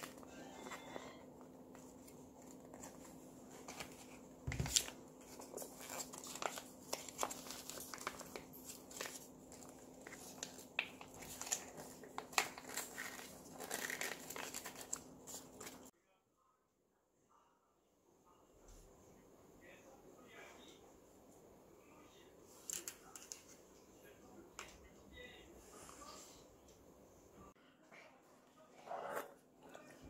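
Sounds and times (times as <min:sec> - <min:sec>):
plastic pouches crinkling: 0:03.6 - 0:15.9.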